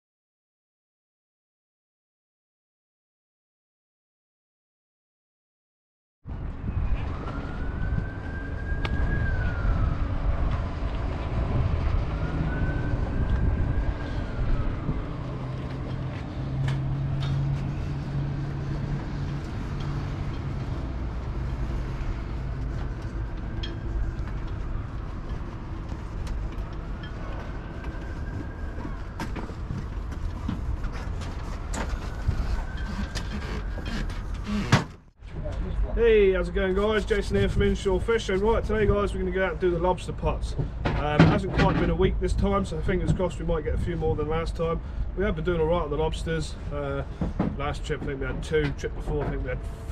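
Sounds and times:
siren wailing: 6.4s - 34.7s.

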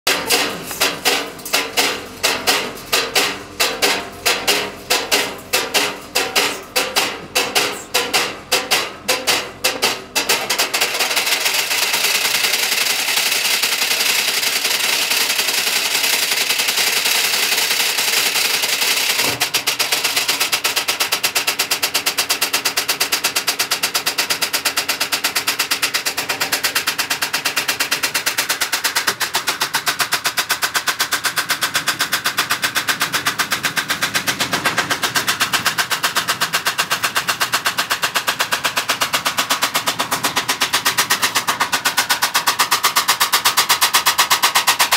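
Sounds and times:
stones banging in drum: 0.1s - 11.0s.

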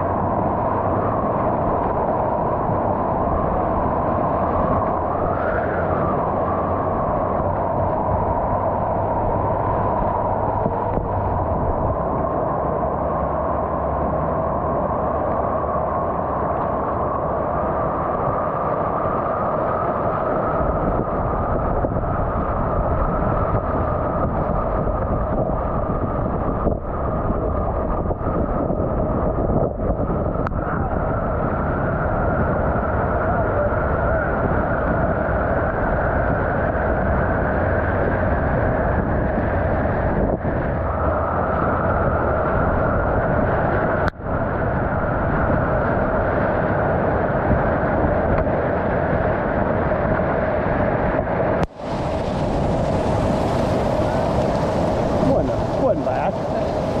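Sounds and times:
whitewater rapids rushing: 51.7s - 57.0s.

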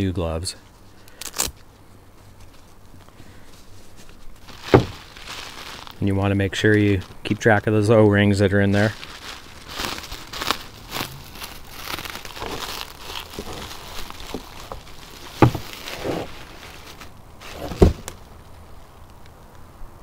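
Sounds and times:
bubble wrap crinkling: 0.6s - 19.2s
dull knocks: 4.7s - 5.0s, 15.4s - 16.3s.

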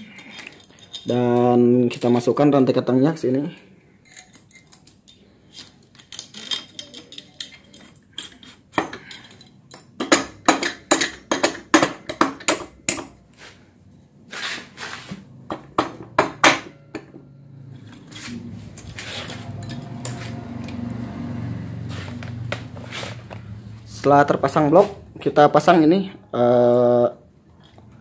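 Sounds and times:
cam chain clinking: 0.0s - 2.3s, 5.9s - 10.0s, 17.7s - 20.7s.

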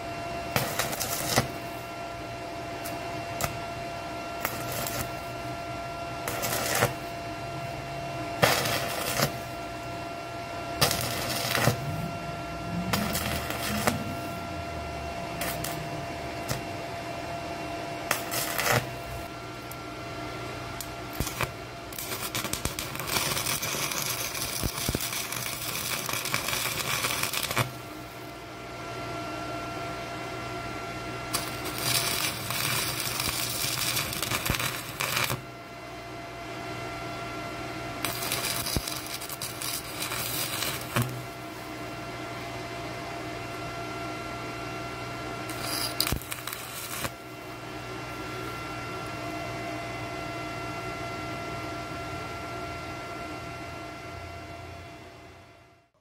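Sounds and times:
steady hum: 0.0s - 42.6s, 43.5s - 55.6s
welding arc crackling: 0.5s - 1.8s, 4.4s - 5.3s, 6.2s - 7.1s, 8.4s - 9.6s, 10.8s - 16.7s, 18.1s - 19.7s, 20.8s - 27.9s, 31.3s - 35.5s, 38.0s - 41.4s, 45.5s - 47.2s.

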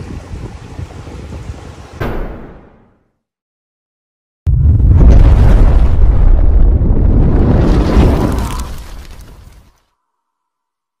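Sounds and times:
boom sound effect with crackles: 2.0s - 3.0s, 4.5s - 9.4s.

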